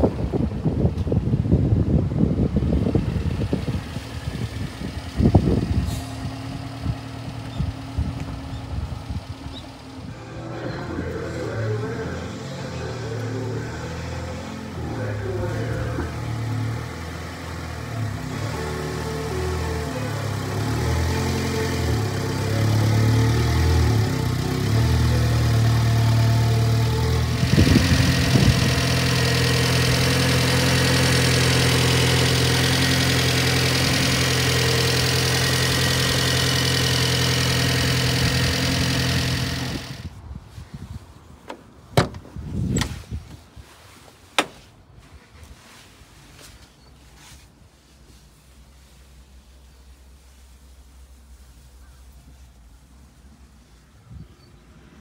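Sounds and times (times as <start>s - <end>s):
car engine idling: 0.0s - 40.1s.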